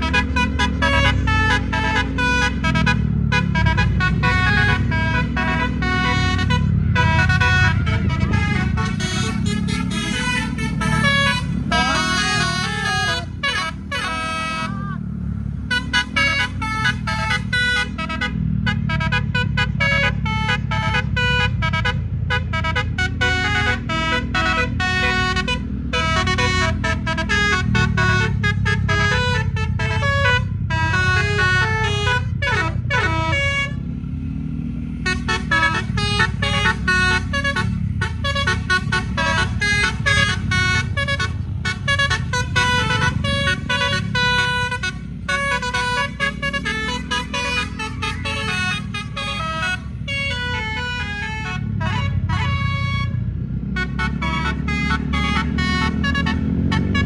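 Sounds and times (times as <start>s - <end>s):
musical air horn playing tune: 0.0s - 14.9s, 15.6s - 33.8s, 35.0s - 53.2s, 53.8s - 57.0s
bus engine idling: 0.0s - 33.9s, 34.8s - 57.0s.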